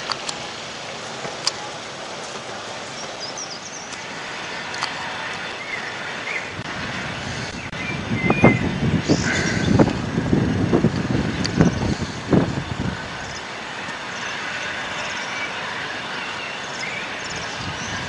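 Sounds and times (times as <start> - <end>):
wind rumbling on microphone: 0.0 - 18.0
bird chirps: 2.8 - 4.6.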